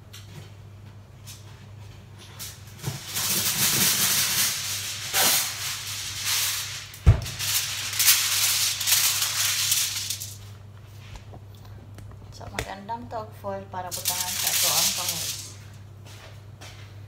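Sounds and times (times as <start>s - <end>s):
aluminium foil crinkling: 2.2s - 10.6s, 13.8s - 15.8s.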